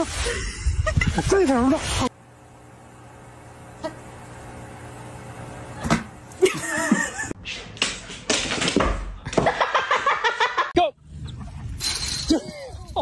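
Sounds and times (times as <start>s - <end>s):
people laughing and giggling: 6.4s - 7.4s, 9.3s - 13.0s.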